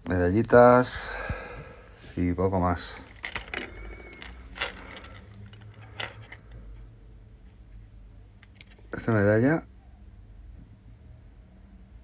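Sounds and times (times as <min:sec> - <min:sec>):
small metal objects clinking: 0:03.1 - 0:06.6.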